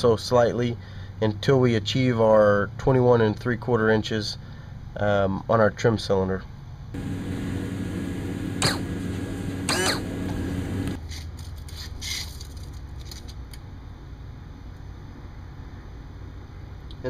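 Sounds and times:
pump motor running: 0:07.0 - 0:11.0.

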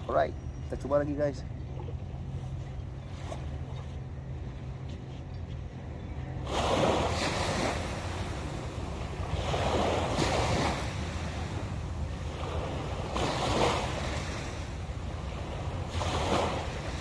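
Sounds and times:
waves breaking on a beach: 0:06.4 - 0:17.0.

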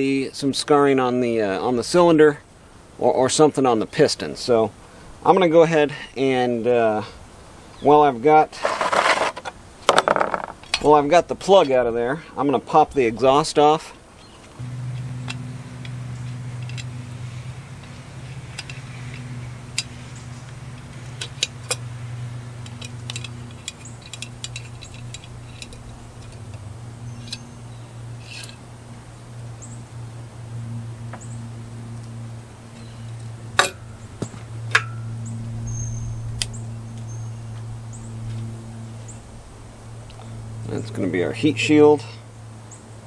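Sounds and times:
steady low hum: 0:13.0 - 0:43.0
metallic clicks of hand tool: 0:22.6 - 0:26.6.

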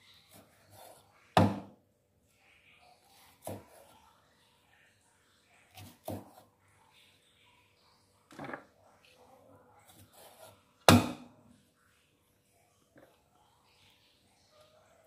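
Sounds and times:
cleaver chopping on wooden block: 0:01.4 - 0:01.7, 0:10.9 - 0:11.3.

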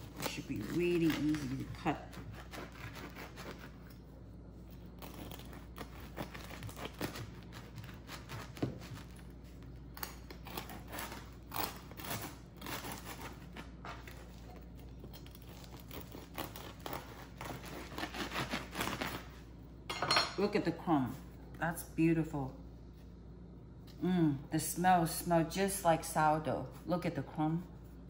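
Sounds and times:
bread knife sawing through crust: 0:02.1 - 0:03.8, 0:15.9 - 0:19.2.

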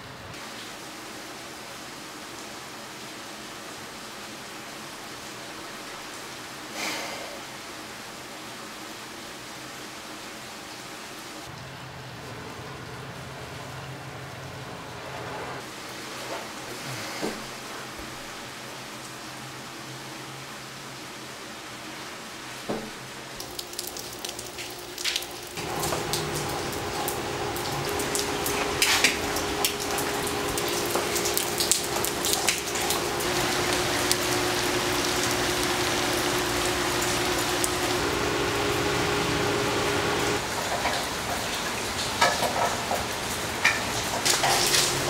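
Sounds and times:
steady rain falling: 0:00.0 - 0:45.0
low multi-tone hum: 0:23.1 - 0:40.4
drips splattering on hard surface: 0:23.4 - 0:35.8.

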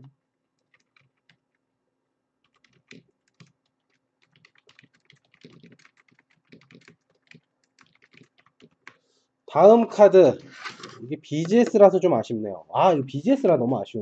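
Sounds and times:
keyboard typing: 0:00.0 - 0:01.6, 0:02.4 - 0:09.0.

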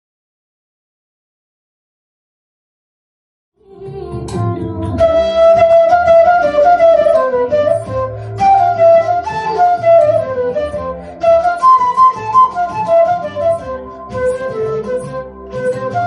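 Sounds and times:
flute-like melody: 0:04.8 - 0:16.0.

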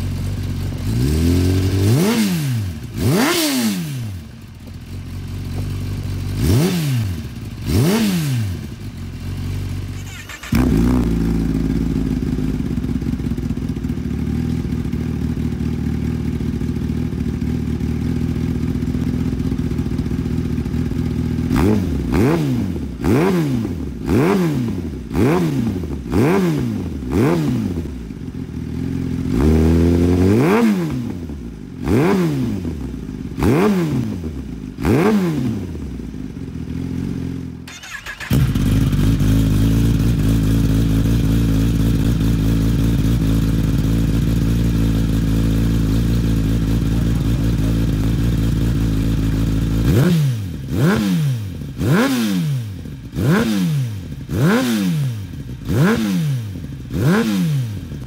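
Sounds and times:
motorcycle engine revving: 0:00.0 - 0:58.0
deep steady engine idle: 0:11.2 - 0:21.5, 0:38.5 - 0:49.8.

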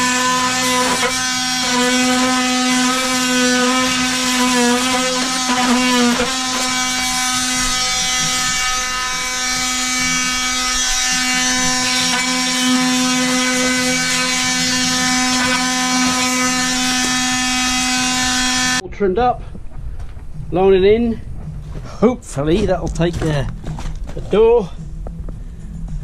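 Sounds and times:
oscillating multi-tool buzzing: 0:00.0 - 0:18.8.

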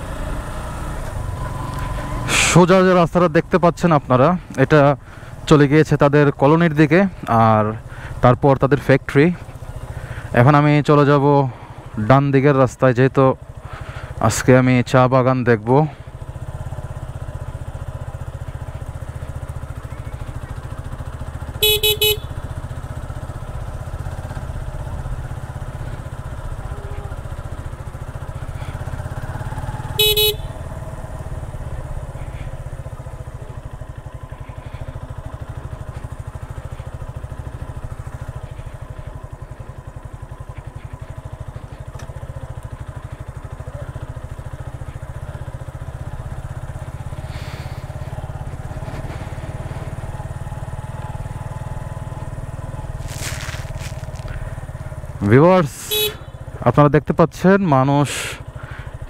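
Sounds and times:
motorcycle engine running: 0:00.0 - 0:59.0
short horn beeps: 0:21.6 - 0:22.4, 0:29.9 - 0:30.6, 0:55.9 - 0:56.4.

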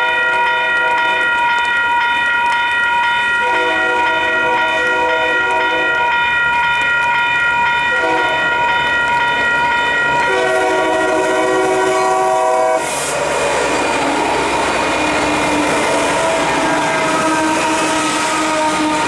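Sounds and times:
train wheels clattering on rails: 0:00.0 - 0:19.0
locomotive air horn: 0:03.4 - 0:06.1, 0:07.9 - 0:08.5, 0:10.3 - 0:13.1, 0:15.1 - 0:19.0.

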